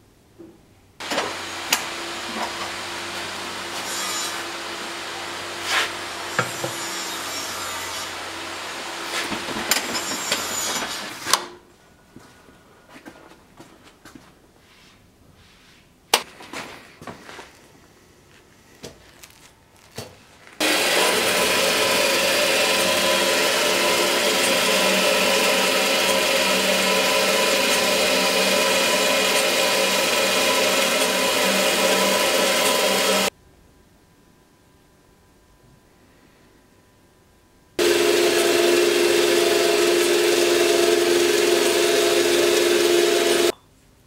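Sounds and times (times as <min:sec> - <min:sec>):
bandsaw cutting metal: 0:01.0 - 0:11.3, 0:20.6 - 0:33.3, 0:37.8 - 0:43.5.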